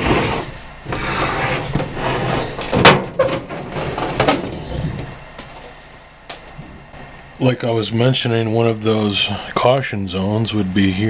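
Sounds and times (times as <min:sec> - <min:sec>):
sheet metal scraping and rattling: 0:00.0 - 0:05.6.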